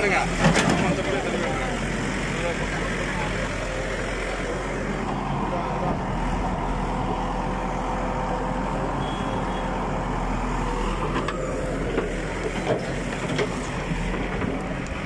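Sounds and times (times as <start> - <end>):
diesel engine droning: 0.0 - 15.0.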